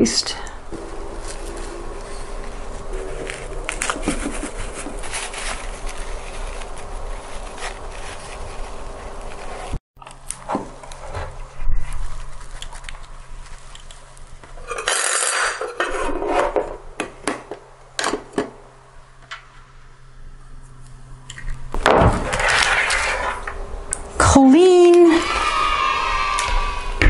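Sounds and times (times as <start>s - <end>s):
rustling and scraping: 0.7s - 17.2s, 20.6s - 23.6s.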